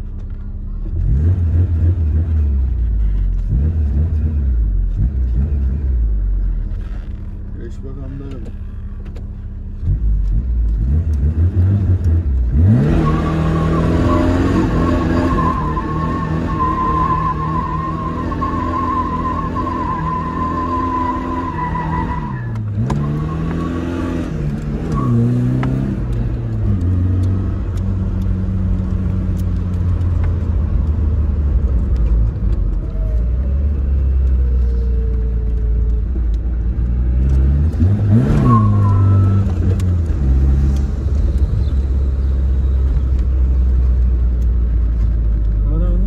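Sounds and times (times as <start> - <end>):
car engine revving from cabin: 0.9 - 7.4, 9.8 - 32.6, 36.6 - 43.6.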